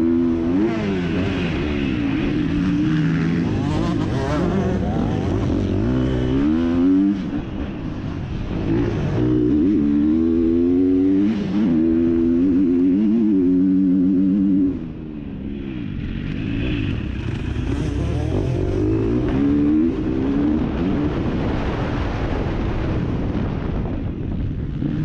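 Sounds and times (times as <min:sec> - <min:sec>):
motocross bike engine revving: 0:00.0 - 0:07.5, 0:16.0 - 0:21.5.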